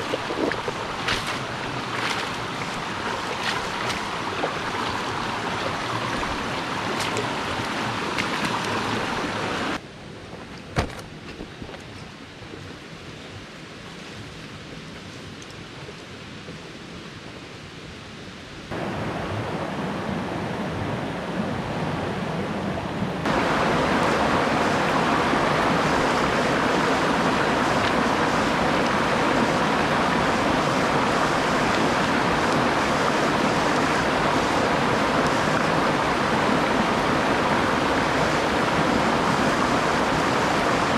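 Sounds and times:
stream rushing over stones: 0.0 - 9.8, 23.2 - 40.9.

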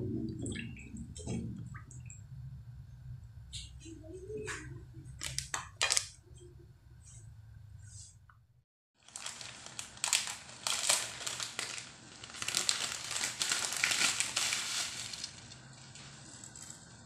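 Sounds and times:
plastic packaging crinkling: 5.2 - 6.2, 9.0 - 17.0.

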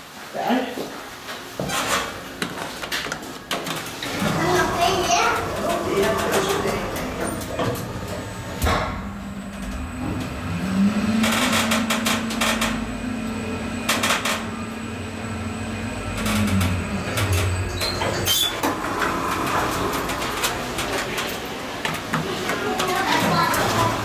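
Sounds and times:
elevator doors sliding open: 1.4 - 24.0
elevator motor hum: 1.4 - 24.0
elevator clunk: 3.6 - 24.0.

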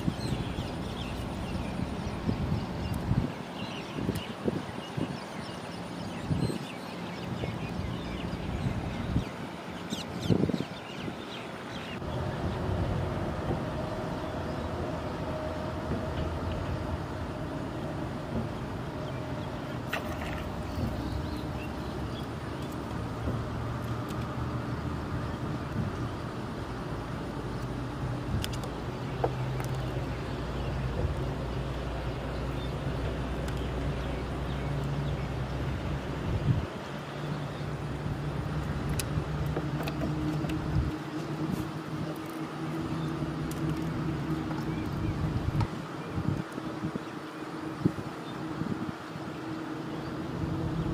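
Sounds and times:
low engine drone: 12.0 - 50.9.

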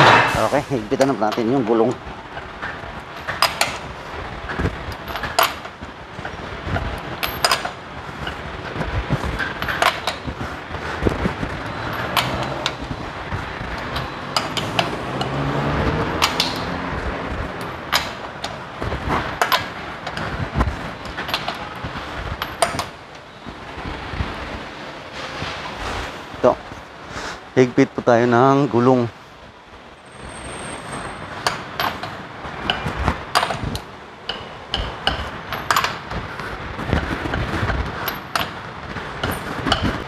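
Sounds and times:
wrench clicking on wheel nuts: 3.1 - 3.8, 4.9 - 5.7, 6.8 - 8.4, 11.9 - 12.8, 13.8 - 15.4, 16.2 - 16.8, 17.6 - 18.6, 22.4 - 23.0, 31.3 - 36.1, 38.0 - 38.6.

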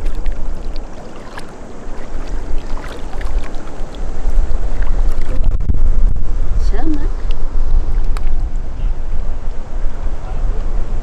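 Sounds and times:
seawater washing among rocks: 0.0 - 5.5
wind buffeting microphone: 0.0 - 11.0.

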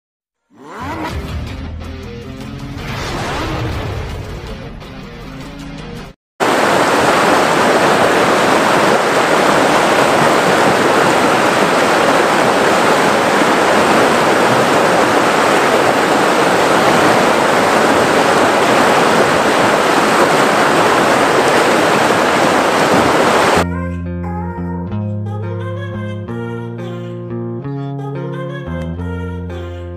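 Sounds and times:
rushing river water: 6.4 - 23.6.

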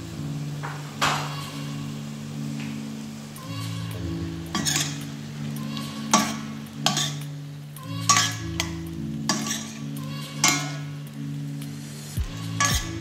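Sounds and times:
background music with low notes: 0.0 - 13.0
food sizzling: 0.0 - 13.0
metal spoon scraping a pot: 4.6 - 5.0, 7.9 - 8.7, 9.3 - 10.9.

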